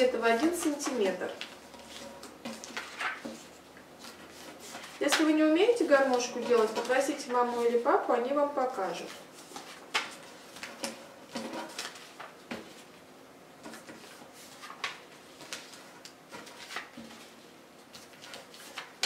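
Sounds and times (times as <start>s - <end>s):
paper crinkling: 0.0s - 8.1s, 8.9s - 12.9s, 13.6s - 19.0s.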